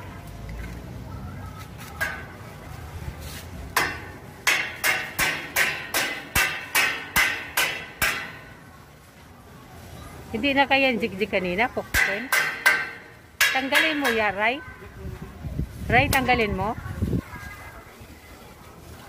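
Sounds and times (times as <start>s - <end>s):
hammer striking steel: 2.0s - 2.4s, 3.8s - 8.6s, 11.9s - 14.4s.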